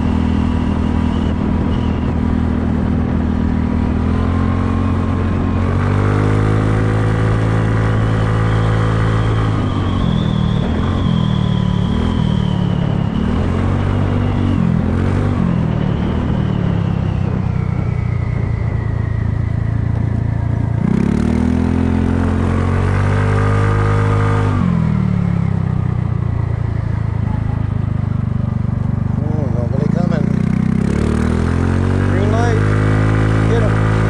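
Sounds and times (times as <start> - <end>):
scooter engine revving: 20.5 - 34.0.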